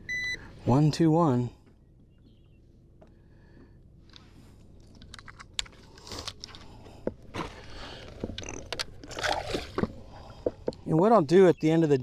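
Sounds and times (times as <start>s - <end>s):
fishing gear clicking and knocking: 4.8s - 10.9s.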